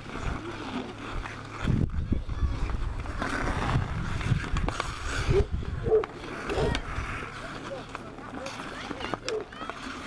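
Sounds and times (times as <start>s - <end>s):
steady low rumble: 0.0s - 8.4s
skate blades scraping ice: 0.0s - 10.0s
hockey sticks knocking on ice: 3.1s - 5.0s, 7.5s - 10.0s.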